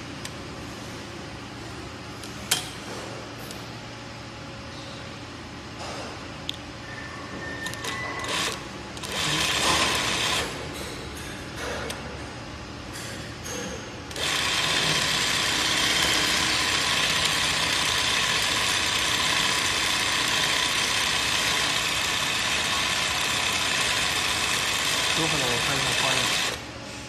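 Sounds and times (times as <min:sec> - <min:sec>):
sewing machine running: 0:08.2 - 0:10.6, 0:14.1 - 0:26.6.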